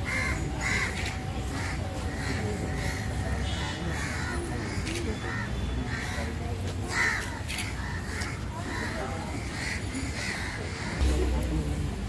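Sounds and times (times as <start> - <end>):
crows cawing: 0.0 - 11.0
steady low rumble: 11.0 - 12.0.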